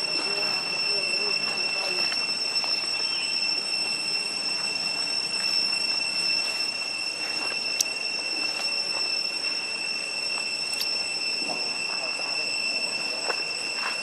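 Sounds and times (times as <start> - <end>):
cicadas droning: 0.0 - 14.0.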